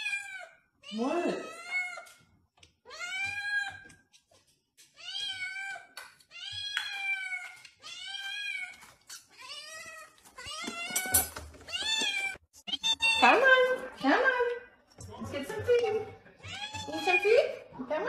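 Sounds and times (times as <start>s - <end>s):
kitten meowing: 12.0s - 13.4s.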